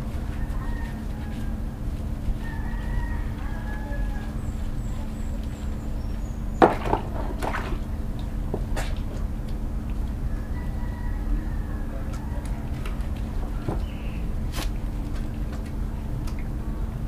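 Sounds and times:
steady low hum: 0.0 - 17.0
rubbing and sloshing water: 6.6 - 9.3.

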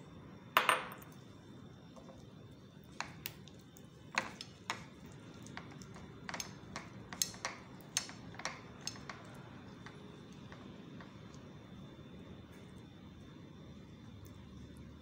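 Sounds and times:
wooden skewers clicking on a plate: 4.1 - 11.2.

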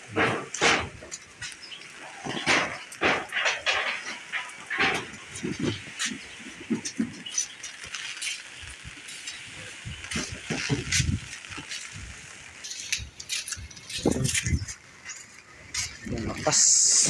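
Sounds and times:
steady hiss: 0.0 - 17.0
strong wind buffeting microphone: 8.6 - 12.3, 12.9 - 15.0.

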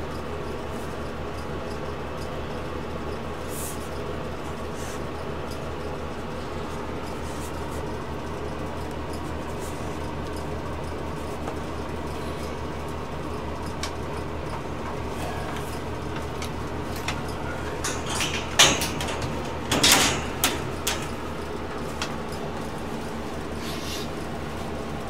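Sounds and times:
steady low hum: 0.0 - 25.0
knocks rattles and scrapes: 14.4 - 22.8.

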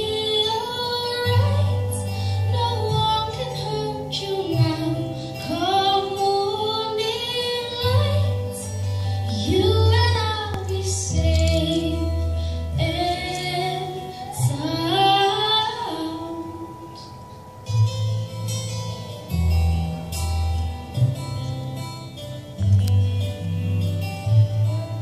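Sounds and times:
woman singing: 0.0 - 17.6
instrumental accompaniment: 0.0 - 25.0.

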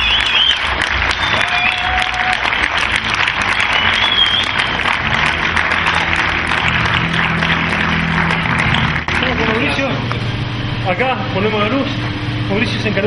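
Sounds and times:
short high whistles: 0.0 - 1.9, 3.6 - 4.8
audience applauding: 0.0 - 10.0.

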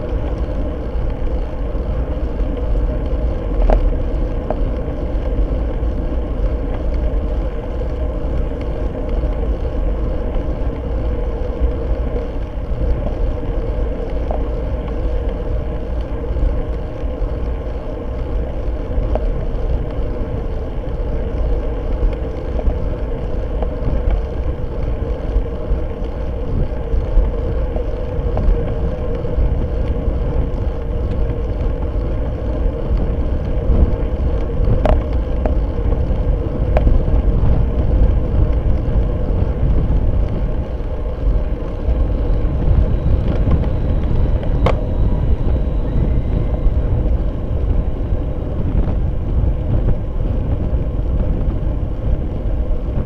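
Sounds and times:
faint steady hum: 0.0 - 53.0
wind and road noise: 0.0 - 53.0.

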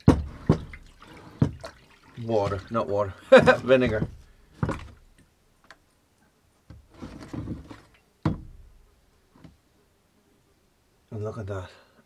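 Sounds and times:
plastic tub knocking: 0.0 - 1.8, 2.4 - 5.0, 7.4 - 8.8.

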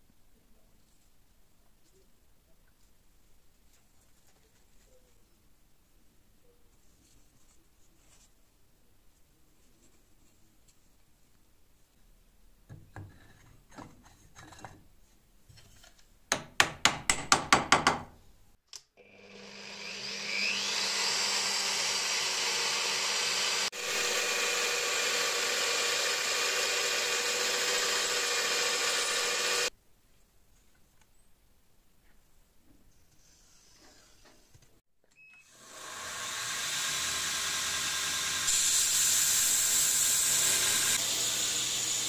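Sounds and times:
drill press drilling wood: 19.0 - 29.7, 35.4 - 42.0.

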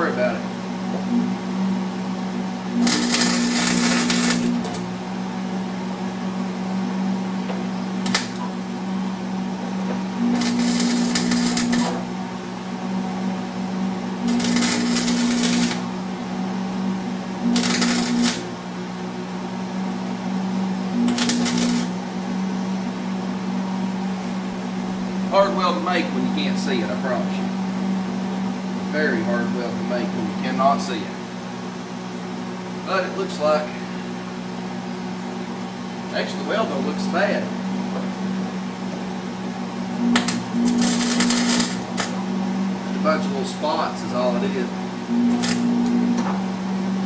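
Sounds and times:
welder low hum: 0.0 - 47.0
welding arc crackle: 2.6 - 5.0, 7.9 - 8.8, 10.1 - 12.4, 14.0 - 16.1, 17.3 - 18.7, 20.8 - 22.1, 40.0 - 42.4, 45.0 - 46.2.

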